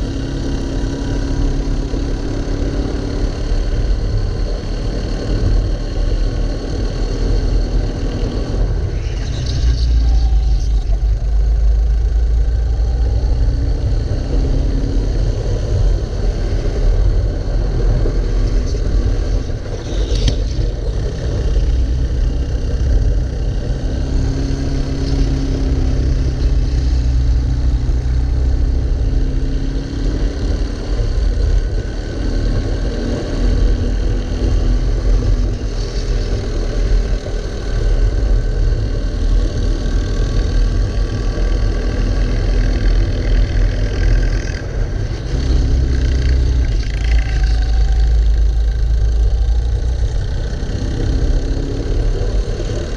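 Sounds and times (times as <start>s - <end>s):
kart engine running hard: 0.0s - 52.9s.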